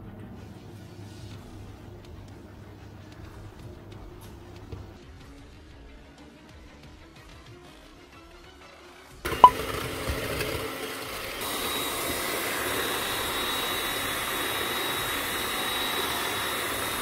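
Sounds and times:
electric hand mixer whisking: 9.3s - 17.0s.

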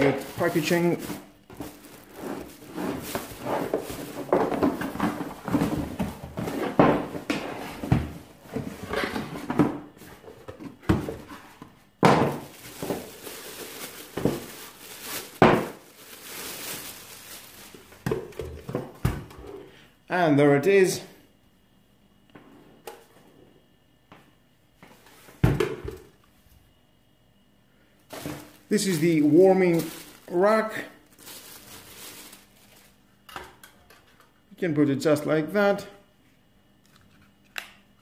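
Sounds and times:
cardboard and plastic rustling: 0.0s - 19.6s, 28.1s - 33.0s.

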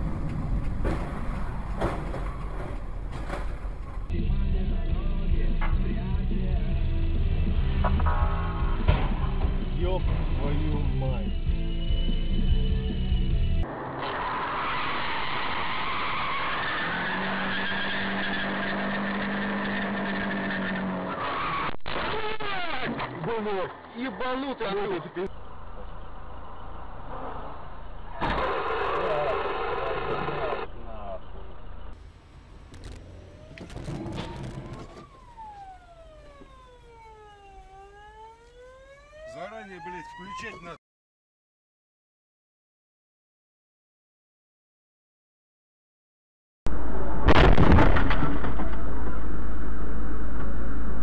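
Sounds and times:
road and engine noise: 0.0s - 40.8s
steady engine tone: 25.3s - 40.8s
police siren wailing: 32.8s - 40.8s.

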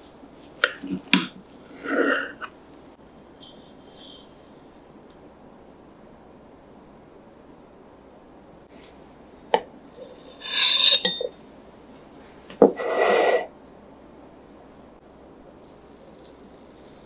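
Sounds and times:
server scraping ceramic plate: 10.0s - 11.3s.

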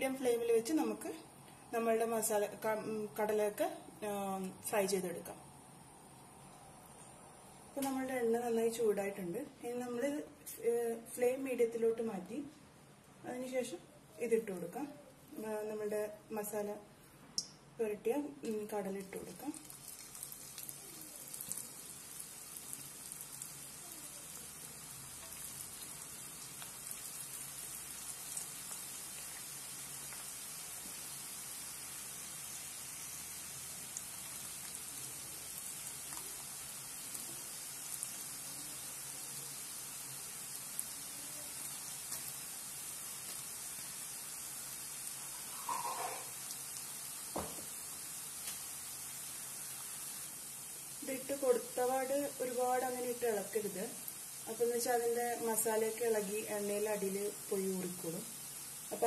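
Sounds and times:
hot oil sizzling and crackling: 18.4s - 59.0s.

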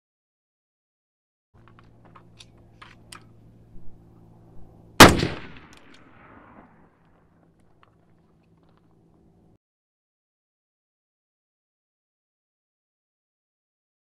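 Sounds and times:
gunshot crack with echo: 5.0s - 6.8s.

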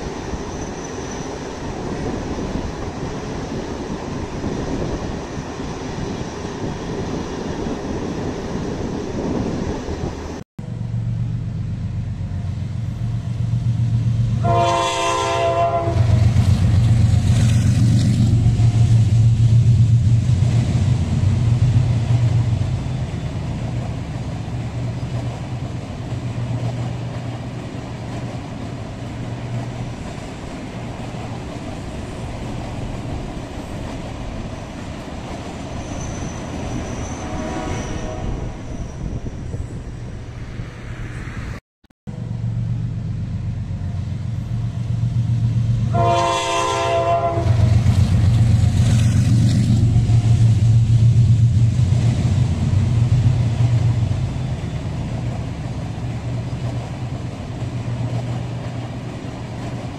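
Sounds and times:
passenger train passing: 0.0s - 59.9s
train horn blast: 14.4s - 16.4s, 36.8s - 38.6s, 45.8s - 47.8s.

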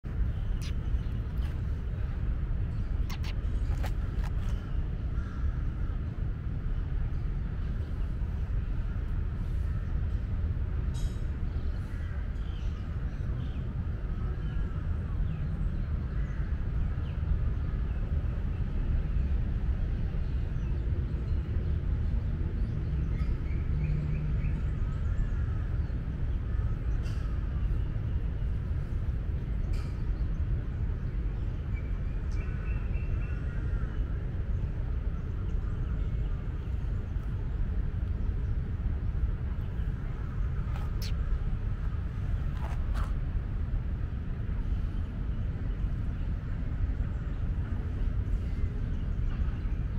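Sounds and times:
steady low rumble: 0.0s - 49.9s
birds chirping: 0.1s - 5.6s, 22.1s - 43.2s.

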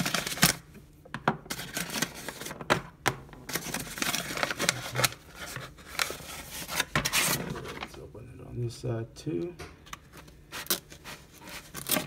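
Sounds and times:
paper rustling: 3.5s - 8.0s, 10.2s - 12.0s.

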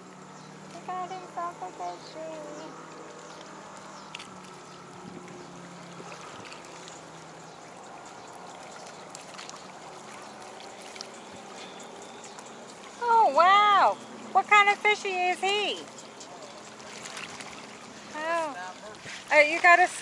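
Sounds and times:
distant motorboat hum: 0.0s - 20.0s
small waves lapping on rocks: 0.0s - 20.0s
faint ticks: 2.6s - 5.4s.

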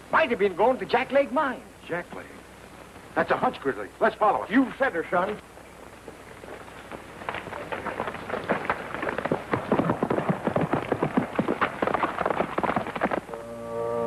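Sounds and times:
horse hoofbeats on dirt: 5.6s - 13.4s.

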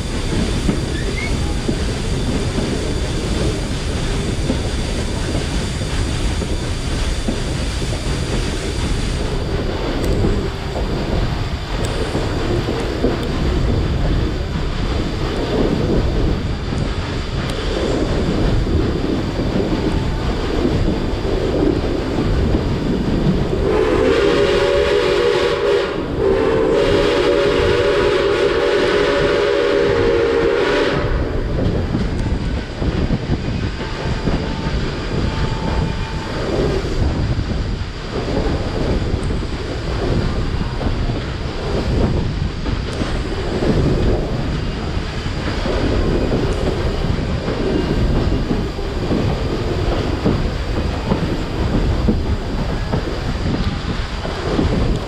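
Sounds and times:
train car rumbling on rails: 0.0s - 55.0s
wind on microphone: 0.0s - 55.0s
steam locomotive whistle: 23.5s - 31.4s.

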